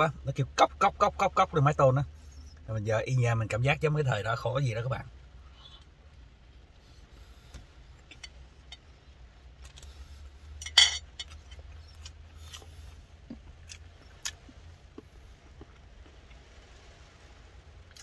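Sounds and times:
rain tapping on car roof: 0:03.8 - 0:10.4, 0:13.1 - 0:18.0
metal spoon clinking on bowl: 0:10.6 - 0:11.4.

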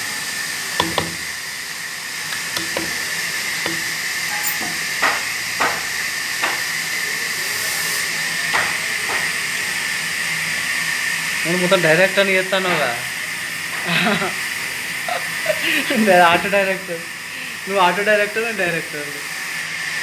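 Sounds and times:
light knocks and taps: 0:02.4 - 0:03.0.

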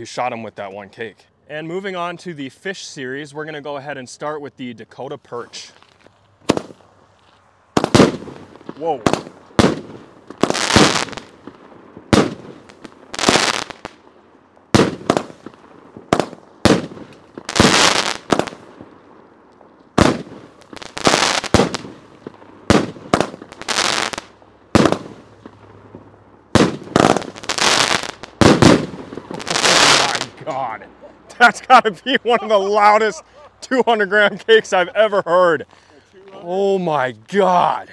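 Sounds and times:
firework shots and aerial breaks: 0:05.7 - 0:06.9, 0:07.7 - 0:14.0, 0:14.7 - 0:19.0, 0:19.9 - 0:33.6.

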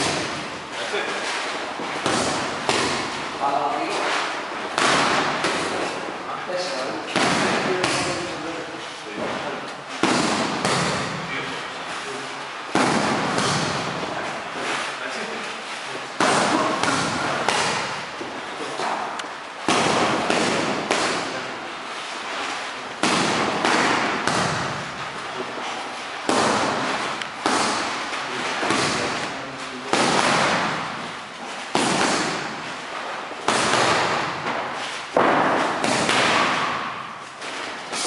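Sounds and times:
boxing gloves smacking mitts: 0:00.0 - 0:00.5, 0:01.8 - 0:03.4, 0:04.7 - 0:06.1, 0:07.1 - 0:08.4, 0:09.9 - 0:11.2, 0:12.7 - 0:14.2, 0:16.2 - 0:18.3, 0:19.6 - 0:21.5, 0:22.9 - 0:25.2, 0:26.0 - 0:38.0.

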